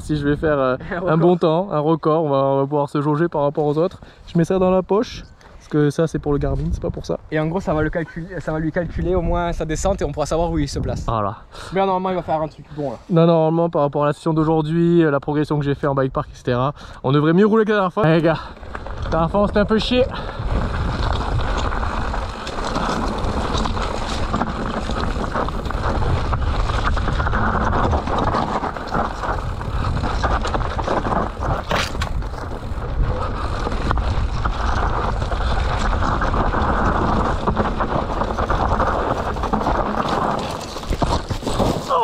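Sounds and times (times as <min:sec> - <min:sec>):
wind rushing over microphone: 0:00.0 - 0:01.0, 0:06.2 - 0:11.5, 0:18.5 - 0:42.0
low rumble of bike tyres: 0:18.0 - 0:42.0
bike rattling and knocking: 0:18.1 - 0:42.0.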